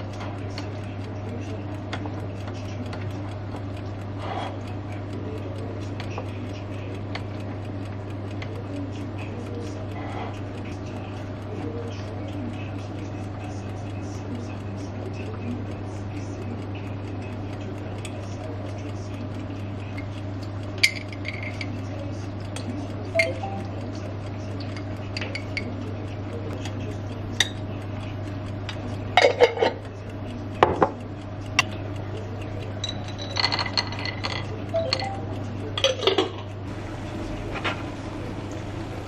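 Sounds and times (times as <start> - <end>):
steady low hum: 0.0 - 39.0
cutlery clinking on ceramic dishes: 29.2 - 29.8, 32.8 - 35.1, 35.8 - 36.5.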